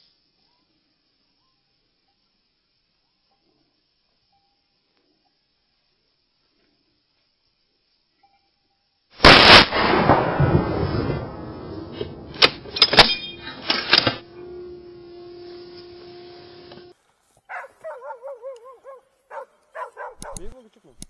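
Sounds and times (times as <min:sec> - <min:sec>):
rifle shot echo: 0:09.2 - 0:14.2
dogs yelping and whining: 0:17.5 - 0:20.4
sharp clicks: 0:20.1 - 0:21.0.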